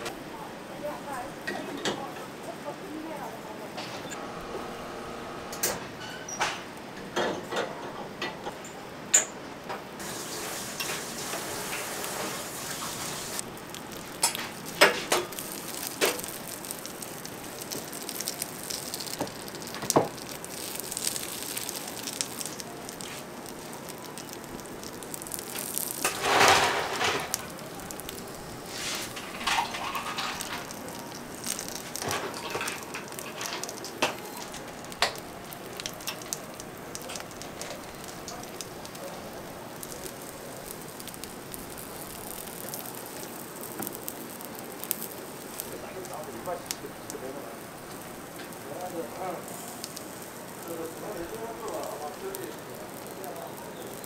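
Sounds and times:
batter sizzling in molds: 9.9 - 54.0.

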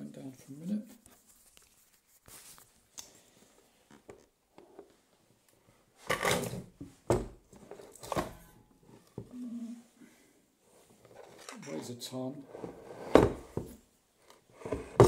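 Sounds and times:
objects knocking on hard surface: 6.1 - 8.3, 13.0 - 13.8, 14.7 - 15.0.

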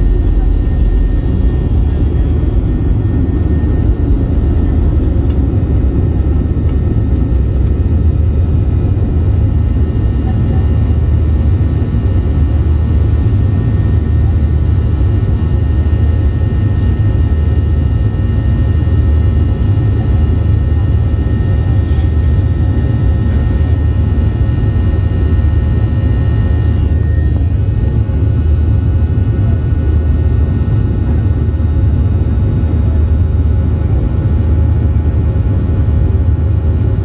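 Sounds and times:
jet engines rumbling: 0.0 - 37.0.

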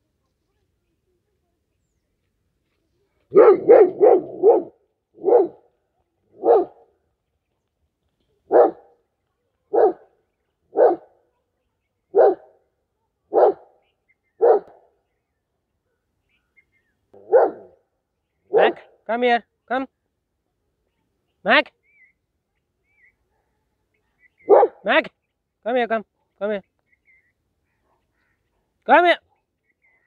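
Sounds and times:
dog barking: 3.3 - 5.7, 6.3 - 7.0, 8.5 - 9.0, 9.7 - 11.3, 12.1 - 12.6, 13.3 - 13.8, 14.4 - 15.0, 17.2 - 17.8, 18.5 - 19.0, 24.4 - 24.9, 27.7 - 28.7.

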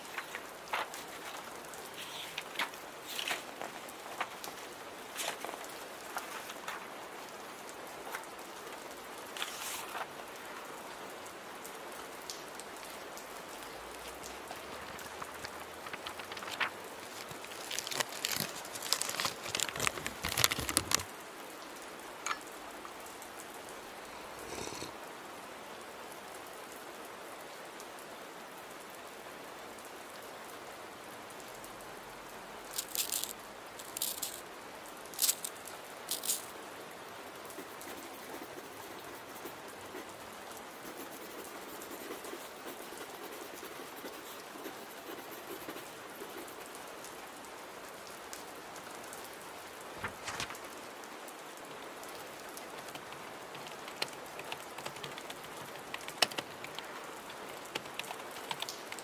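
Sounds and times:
steady rain: 0.0 - 59.0
rustles and clicks from desk: 14.8 - 21.1, 32.8 - 34.4, 35.2 - 36.5, 50.0 - 50.7.

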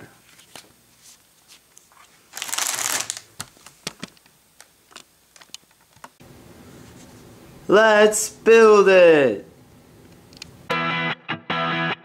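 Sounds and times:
paper rustling: 0.3 - 4.2.

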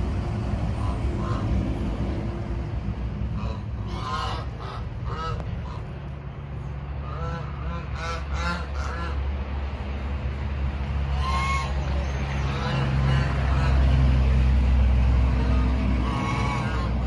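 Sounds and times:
steady low rumble: 0.0 - 17.0
geese honking: 0.8 - 1.6, 3.4 - 6.0, 7.0 - 9.2, 11.1 - 14.0, 15.1 - 17.0.

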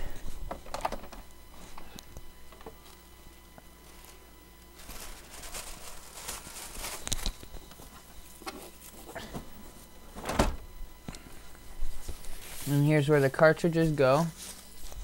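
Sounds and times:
printer handling rustle: 0.3 - 10.7.

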